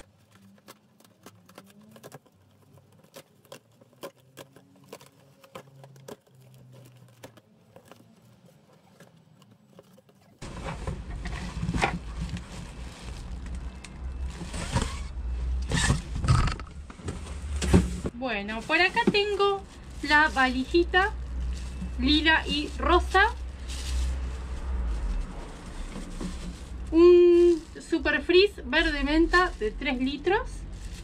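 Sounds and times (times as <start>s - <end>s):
clicks and scratches on cardboard: 0.0s - 10.4s.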